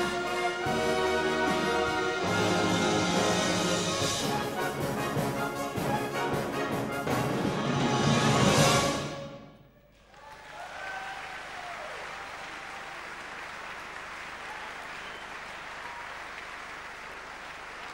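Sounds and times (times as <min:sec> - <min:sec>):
brass and saxophones chord: 0:00.0 - 0:09.7
audience applauding: 0:09.9 - 0:17.9.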